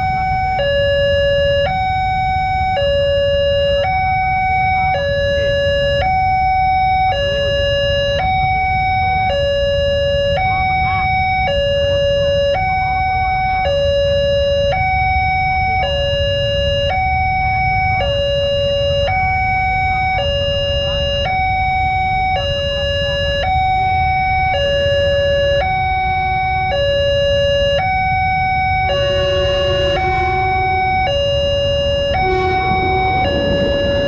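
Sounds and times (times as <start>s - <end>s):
two-tone crossing alarm: 0.0s - 34.0s
low traffic rumble: 27.2s - 34.0s
lower electronic tone: 28.5s - 34.0s.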